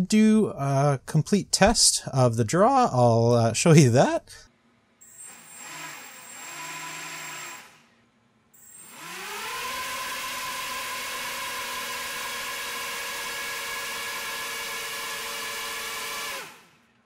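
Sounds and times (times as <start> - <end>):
quadcopter motors whining: 5.0 - 8.0, 8.6 - 16.8.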